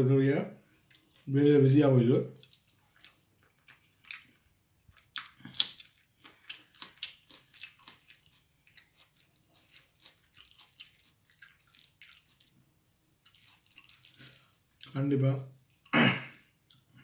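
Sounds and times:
chewing: 0.6 - 15.0, 15.6 - 17.0
wet sticky eating smacks: 0.7 - 1.6, 2.3 - 15.0.

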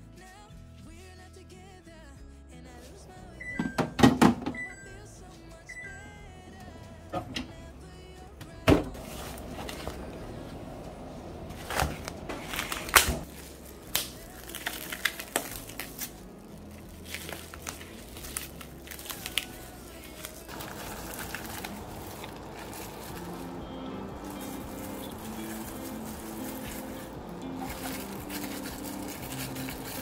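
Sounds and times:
soft background music: 0.0 - 30.0
plastic film crinkling: 9.0 - 10.8, 11.5 - 30.0.

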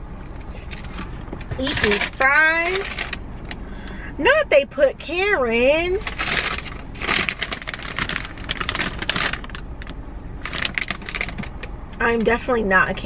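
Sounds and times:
paper bag rustling and crinkling: 0.6 - 3.2, 6.0 - 11.7.

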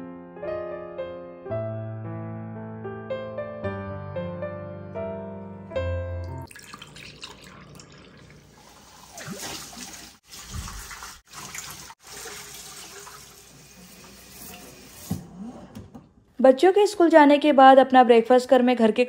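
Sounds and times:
tap water running into sink: 6.4 - 15.2.

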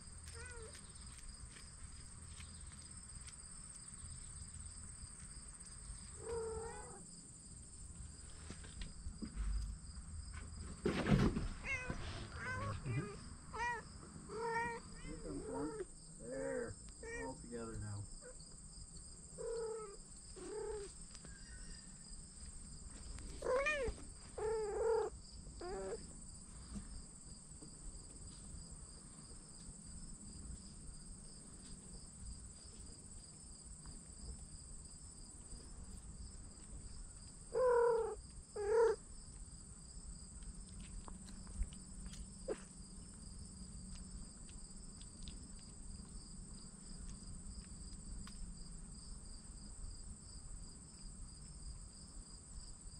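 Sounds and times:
insect chorus: 0.0 - 52.9
kittens mewing: 0.3 - 0.8, 6.2 - 7.1, 11.6 - 17.5, 19.4 - 20.9, 23.2 - 26.0, 37.5 - 39.0, 42.4 - 42.8.

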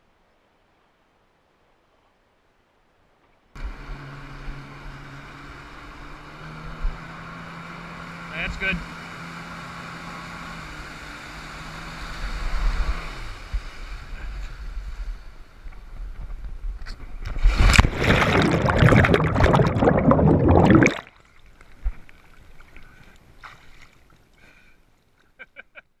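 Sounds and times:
water splashing: 17.3 - 24.4.

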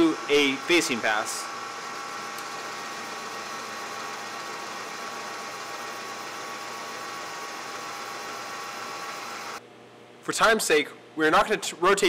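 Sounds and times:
lathe cutting whine: 0.0 - 9.6
metal lathe humming: 0.0 - 9.6.

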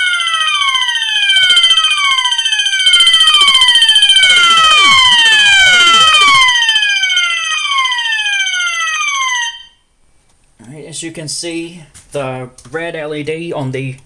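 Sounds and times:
fire alarm sounding: 0.0 - 9.8.

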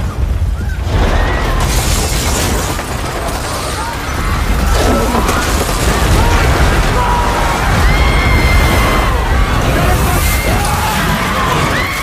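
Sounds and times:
falling debris crashing: 0.0 - 12.0
crowd crying out: 3.4 - 12.0.

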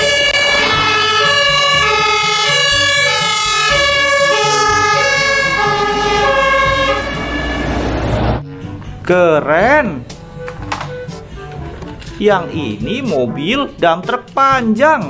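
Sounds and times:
two-tone fire engine siren: 0.0 - 8.4
truck engine rumble: 0.0 - 9.0.

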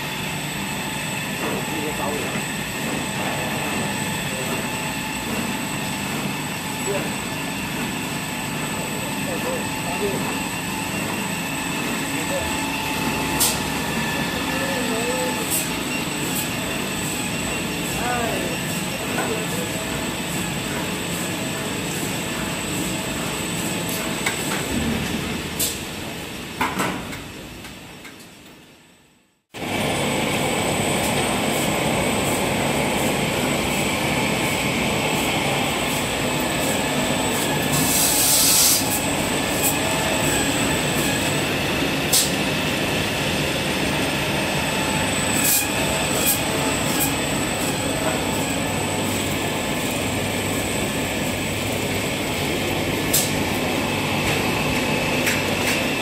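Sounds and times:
machinery rattle and hum: 0.0 - 28.1, 38.8 - 56.0
roll conveyors running: 29.6 - 56.0.

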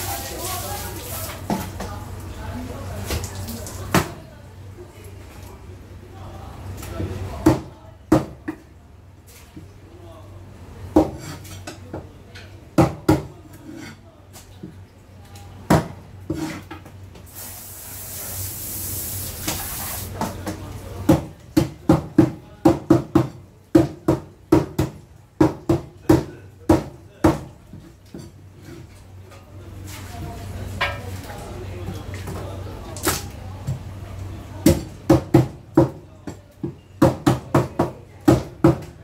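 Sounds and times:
spraying water hiss: 17.3 - 20.2.

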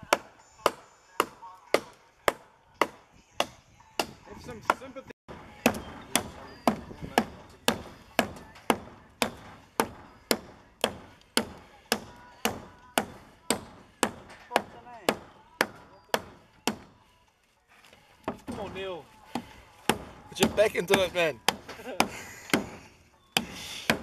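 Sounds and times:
hatchet chopping into a log: 0.1 - 16.9.

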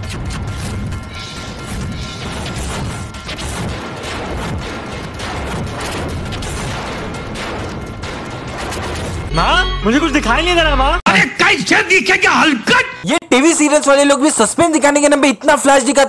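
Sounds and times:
crash and swish sound effects: 0.0 - 9.3
dramatic background music: 0.0 - 11.0.

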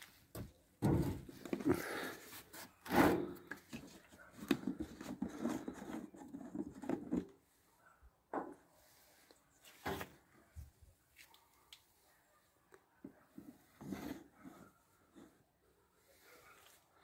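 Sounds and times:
plastic jerry can handling: 0.8 - 7.4.

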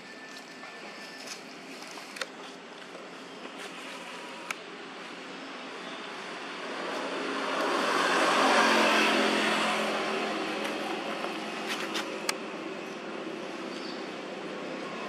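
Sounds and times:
motor vehicle passing by: 6.2 - 12.2.

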